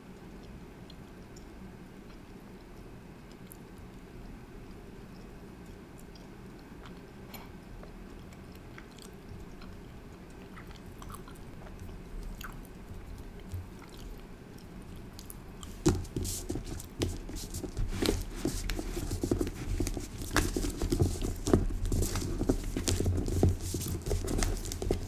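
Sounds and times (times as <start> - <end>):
fingertips patting dough on table: 15.6 - 25.0.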